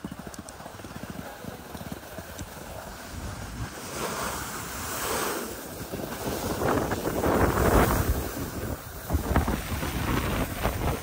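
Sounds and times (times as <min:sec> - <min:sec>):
skis sliding over snow: 0:00.1 - 0:11.0
wind buffeting microphone: 0:02.4 - 0:11.0.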